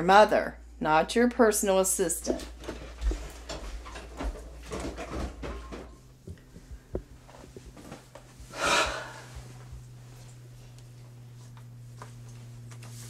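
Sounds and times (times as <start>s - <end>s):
footsteps: 2.3s - 13.0s
rustling as someone sits on a bed: 6.5s - 13.0s.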